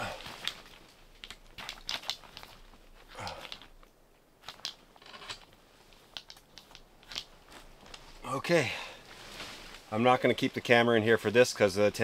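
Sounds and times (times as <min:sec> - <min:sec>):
tent pole clicks and knocks: 0:00.0 - 0:08.0
tent fabric rustling: 0:06.8 - 0:11.0.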